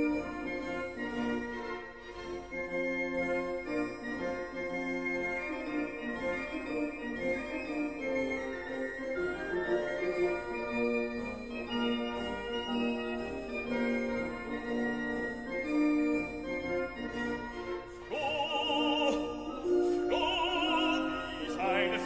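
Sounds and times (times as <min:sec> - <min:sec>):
operatic singing with vibrato: 0:18.0 - 0:22.0.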